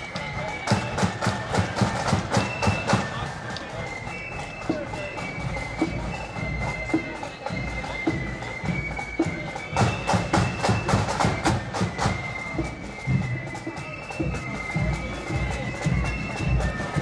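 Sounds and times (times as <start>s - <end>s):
high flute melody: 0.0s - 17.0s
marching drum beat: 0.0s - 17.0s
snare drumming: 0.0s - 17.0s.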